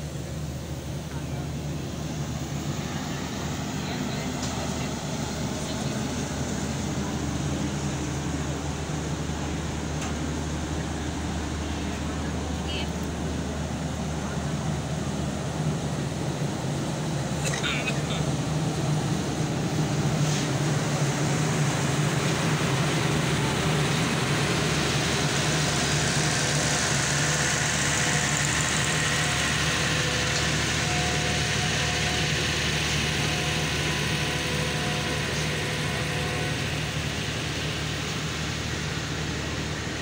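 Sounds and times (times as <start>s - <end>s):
diesel generator drone: 0.0s - 40.0s.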